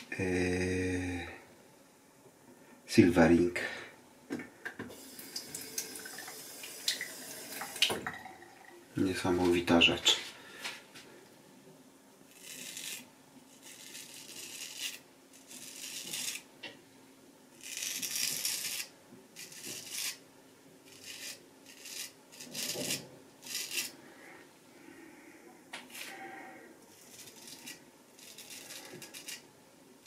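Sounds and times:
razor scraping stubble: 12.3s - 16.5s, 17.6s - 20.2s, 20.9s - 24.0s, 26.9s - 29.5s.

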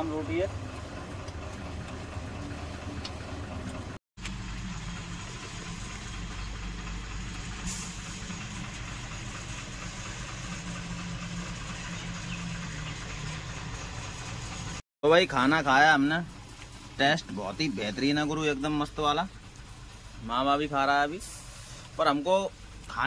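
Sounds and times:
vehicle engine idling: 0.0s - 23.0s.

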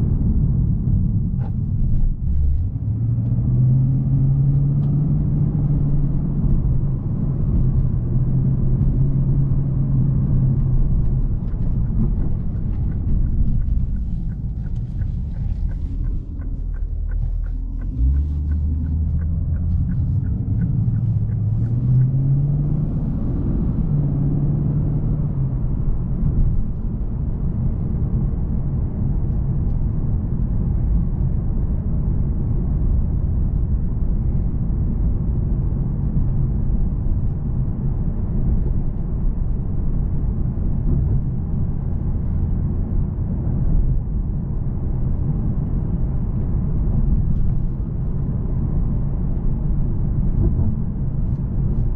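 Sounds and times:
car engine heard from cabin: 0.0s - 51.9s
road noise: 0.0s - 51.9s
light regular ticking: 5.8s - 22.8s.

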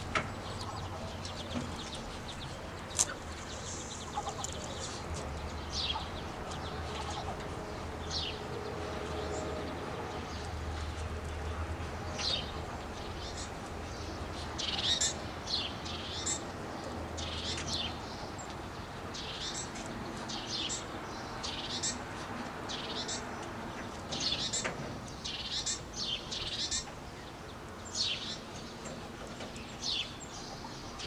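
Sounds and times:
ducklings peeping: 0.0s - 9.5s, 11.7s - 22.0s, 22.7s - 27.3s.

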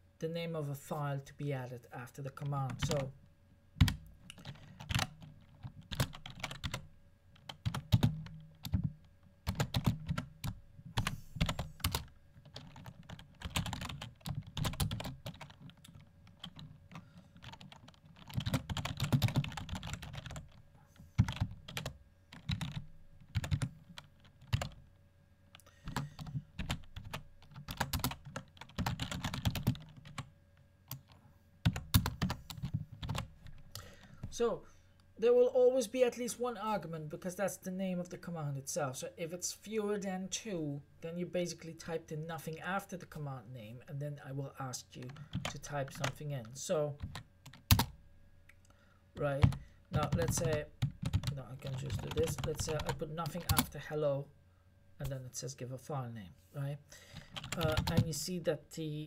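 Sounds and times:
typing on computer keyboard: 3.8s - 6.8s, 7.4s - 20.6s, 21.2s - 24.8s, 25.9s - 30.3s, 30.9s - 33.3s, 47.0s - 48.0s, 49.4s - 53.7s, 57.2s - 58.1s.

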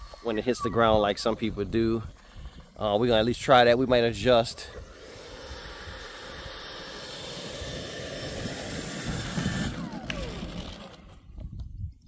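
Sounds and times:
electric ducted fan hissing: 4.9s - 11.2s.

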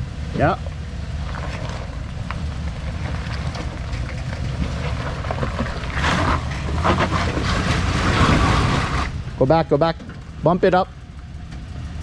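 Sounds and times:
engine running at low revs: 0.0s - 12.0s
tyres crunching over rocks: 0.7s - 9.2s.

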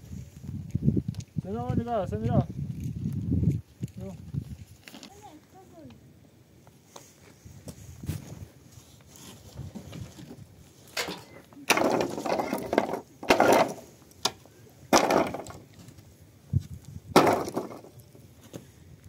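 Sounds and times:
wooden planks knocking and clattering: 11.0s - 15.7s, 17.1s - 18.0s.

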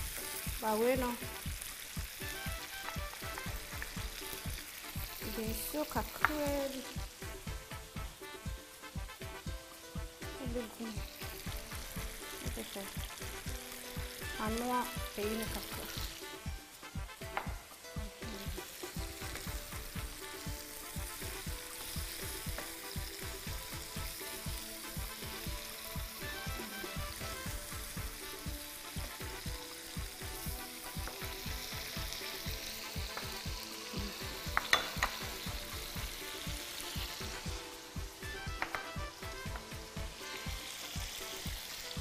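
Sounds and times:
stew sizzling in a frying pan: 0.0s - 42.0s.

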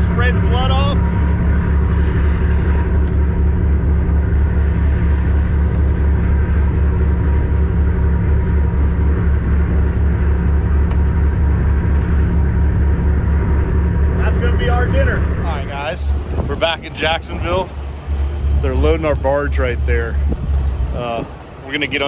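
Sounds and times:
boat diesel engine droning: 0.0s - 22.0s.

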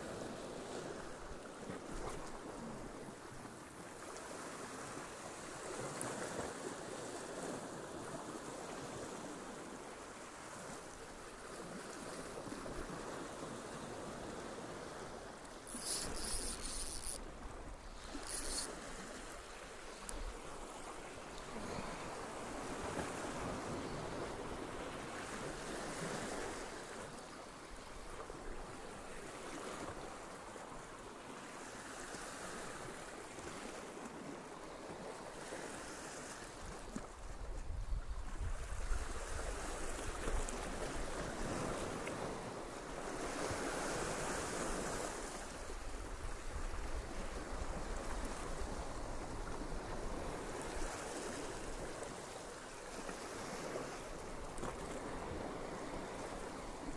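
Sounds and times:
sea waves breaking over rocks: 0.0s - 37.8s, 38.4s - 56.9s
wind rumbling on microphone: 37.2s - 42.3s.

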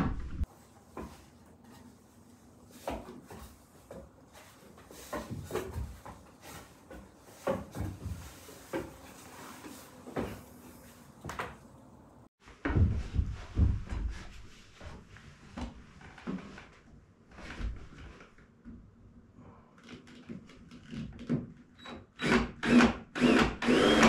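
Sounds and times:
boots on ladder rungs: 2.6s - 10.6s.

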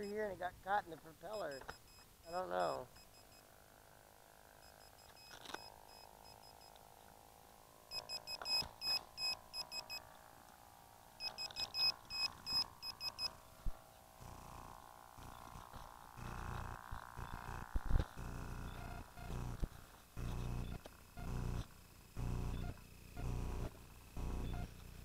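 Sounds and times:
faint steady hum: 0.0s - 25.0s
short high electronic beeps: 1.3s - 2.0s, 11.2s - 13.3s.

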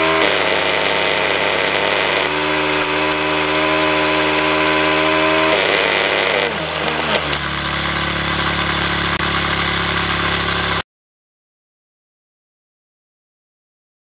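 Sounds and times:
low buzz: 0.0s - 10.8s
small electric motor whining: 0.0s - 10.8s.

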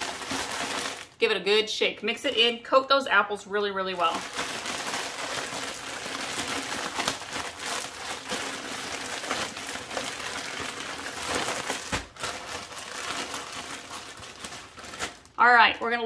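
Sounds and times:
plastic bag crinkling: 0.0s - 1.2s, 3.9s - 16.0s.

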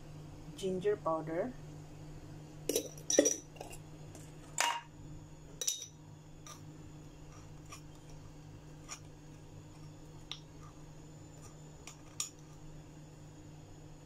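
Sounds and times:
spoon clinking against ceramic bowl: 2.7s - 3.7s, 5.6s - 6.0s.

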